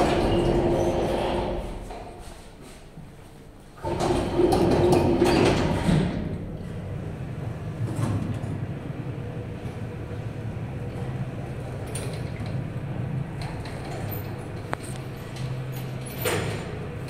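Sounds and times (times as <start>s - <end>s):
lift humming: 0.0s - 2.4s, 3.8s - 17.0s.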